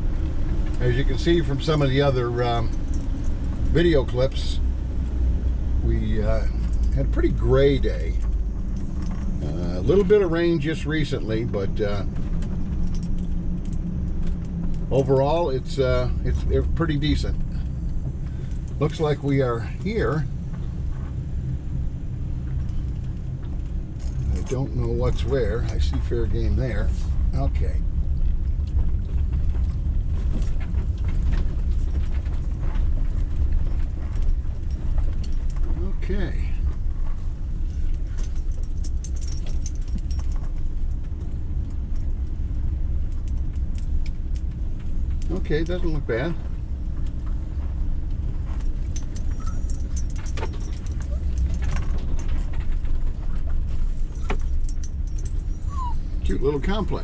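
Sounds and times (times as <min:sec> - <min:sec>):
van engine and road rumble: 0:00.0 - 0:57.0
light clicks and rattles: 0:00.2 - 0:21.2, 0:22.5 - 0:57.0
light rattling clicks: 0:28.6 - 0:46.3, 0:48.1 - 0:57.0.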